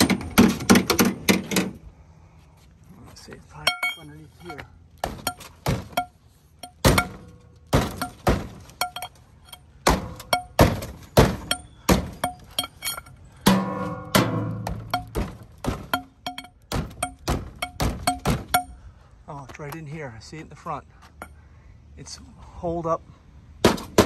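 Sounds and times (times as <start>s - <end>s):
breaker bar striking metal: 3.7s - 18.8s.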